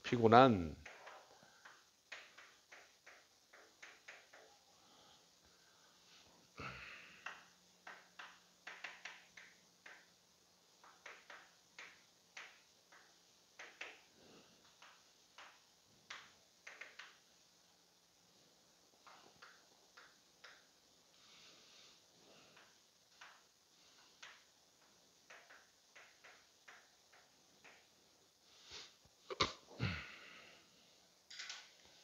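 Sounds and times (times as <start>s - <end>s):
writing taps and scratches on board: 0.8s - 4.6s, 7.3s - 10.1s, 10.8s - 17.2s, 19.0s - 20.7s, 22.6s - 27.9s.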